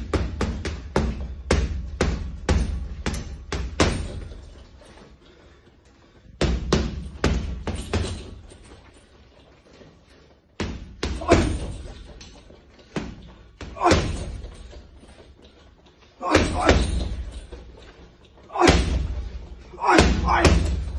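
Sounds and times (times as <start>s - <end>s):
punches on heavy bag: 0.0s - 4.4s, 10.6s - 12.1s, 13.0s - 14.7s, 16.2s - 17.5s, 18.5s - 20.9s.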